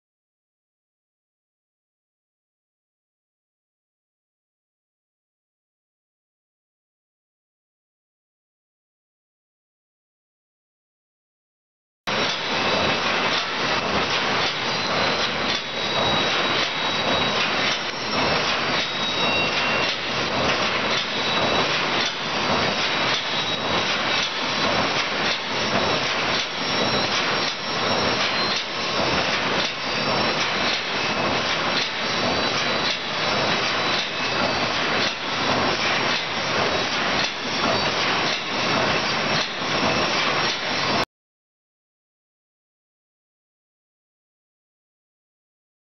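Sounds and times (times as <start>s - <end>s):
welding machine clatter and hiss: 12.1s - 41.0s.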